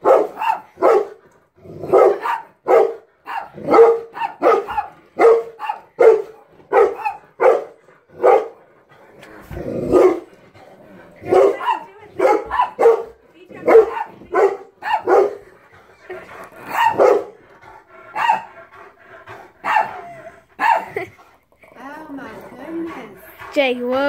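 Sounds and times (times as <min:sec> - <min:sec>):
dog barking: 0:00.0 - 0:01.2, 0:01.9 - 0:08.6, 0:09.9 - 0:10.3, 0:11.2 - 0:15.4, 0:16.7 - 0:17.4, 0:18.1 - 0:18.5, 0:19.6 - 0:20.0, 0:20.6 - 0:21.0
dogs on television: 0:00.0 - 0:24.0
rough dog vocalization: 0:15.9 - 0:24.0.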